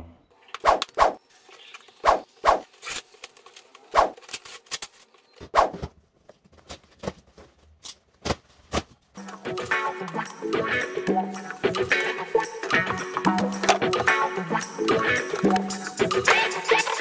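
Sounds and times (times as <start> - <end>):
cardboard tearing and crackling: 2.6 - 9.0.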